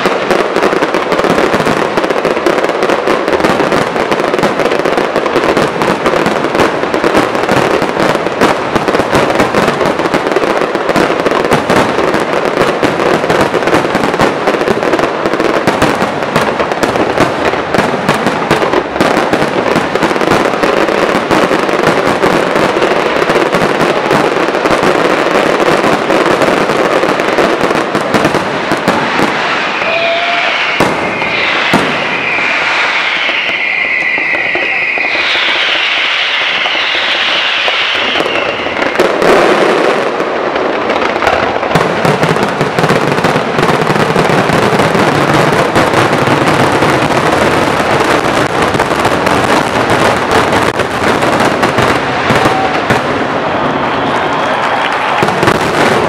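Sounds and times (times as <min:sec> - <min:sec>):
dense fireworks crackling: 0:00.0 - 0:56.0
whistling fireworks: 0:00.0 - 0:56.0
fireworks shells bursting: 0:28.0 - 0:42.7.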